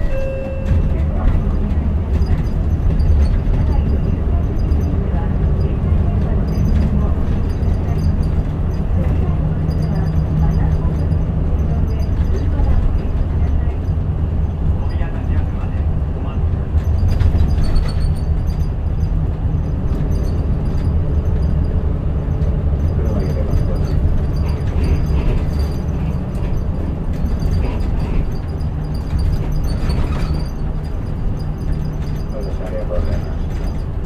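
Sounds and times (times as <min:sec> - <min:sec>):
bus diesel engine droning: 0:00.0 - 0:34.0
road noise: 0:00.0 - 0:34.0.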